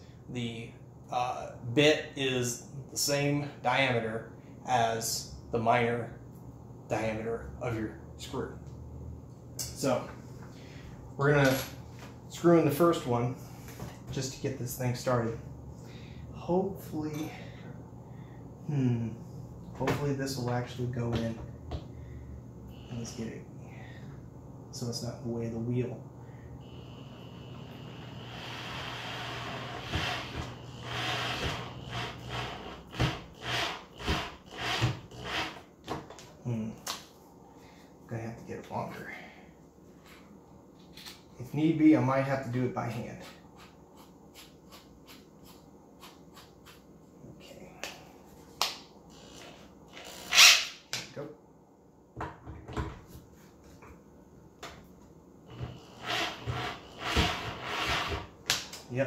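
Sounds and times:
electric drill motor: 26.7s - 35.6s, 49.1s - 50.7s, 55.5s - 58.2s
screw grinding in wood: 27.3s - 35.6s, 49.1s - 50.8s, 55.5s - 58.3s.

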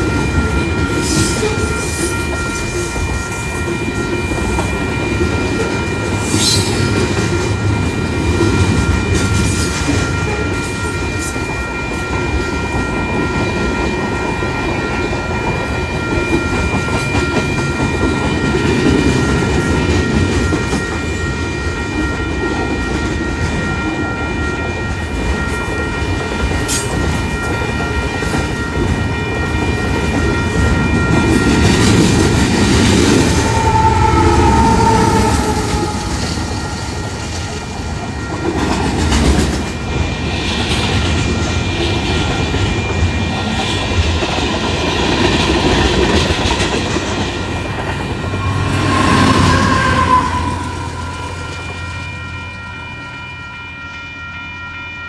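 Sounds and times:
high ringing tones: 0.0s - 40.3s, 47.4s - 55.0s
train wheels rumbling on rail: 0.0s - 52.9s
diesel locomotive passing: 0.0s - 55.0s
clickety-clack over rail joints: 34.8s - 49.0s.

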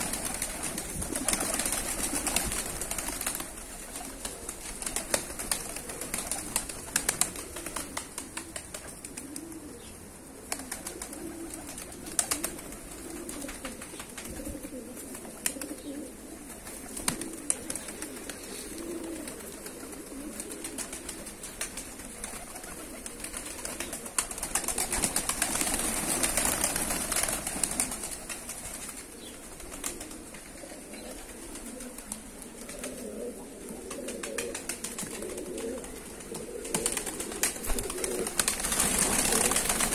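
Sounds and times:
wing claps and flapping: 0.0s - 9.4s, 19.1s - 29.0s, 34.1s - 39.9s
pigeons cooing: 0.0s - 39.9s.

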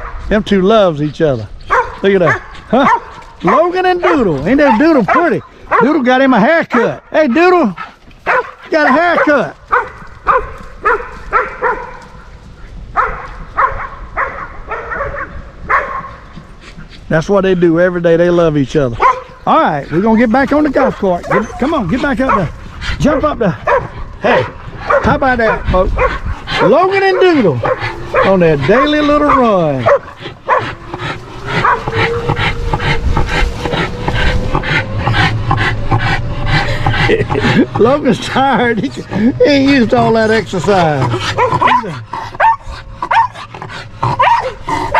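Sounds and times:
dog barking: 1.7s - 6.0s, 8.2s - 12.3s, 12.9s - 16.2s, 19.0s - 19.4s, 21.2s - 22.5s, 23.6s - 30.8s, 31.6s - 32.7s, 41.4s - 43.4s, 44.0s - 44.9s.

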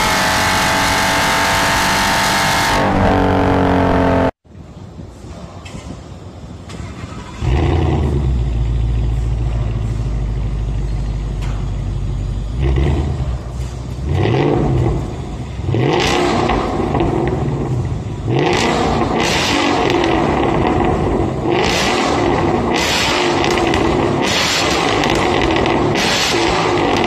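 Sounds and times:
car engine revving: 0.0s - 4.4s, 11.4s - 27.0s.

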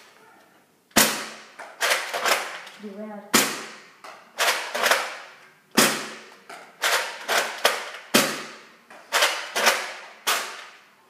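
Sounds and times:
toy blaster snaps and clacks: 1.6s - 2.8s, 4.4s - 5.2s, 6.8s - 8.2s, 9.1s - 10.8s.

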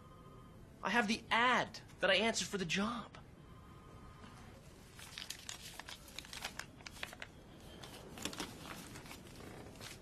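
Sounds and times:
paper rustling and crinkling: 4.8s - 10.0s.

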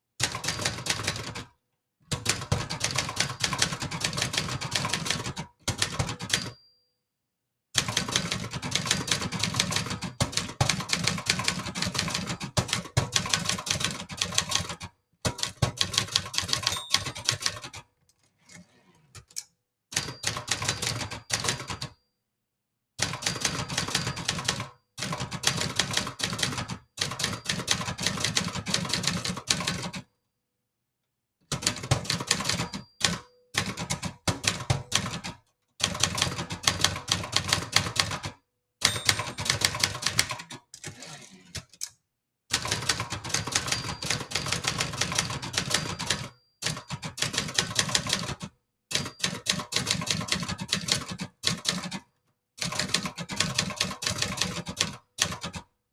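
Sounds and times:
typewriter carriage return: 2.2s - 6.6s, 7.8s - 17.8s, 31.6s - 38.2s, 38.8s - 41.9s, 42.5s - 52.0s
typewriter keys clacking: 2.2s - 6.6s, 7.8s - 17.8s, 20.0s - 21.9s, 31.6s - 52.0s, 52.6s - 55.7s.

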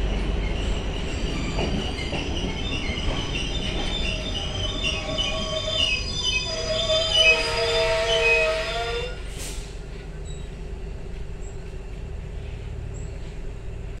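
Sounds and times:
train wheels squealing: 0.0s - 10.6s
train low rumble: 0.0s - 14.0s
brief hiss: 9.3s - 9.8s.

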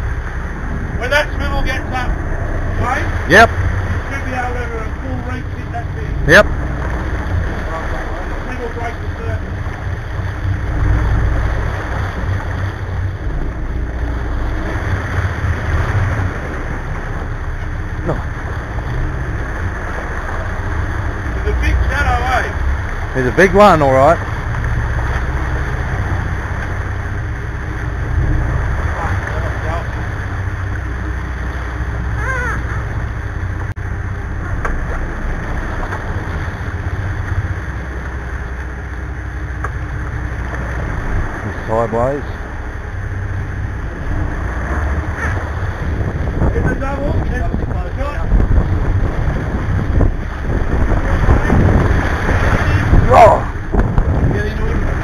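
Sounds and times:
boat engines running: 0.0s - 55.0s
churning water: 0.0s - 55.0s
wind buffeting microphone: 0.0s - 55.0s.

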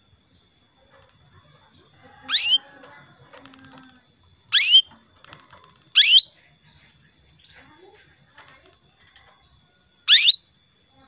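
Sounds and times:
canary call notes: 2.2s - 2.7s, 4.5s - 4.9s, 5.9s - 6.4s, 10.1s - 10.5s.

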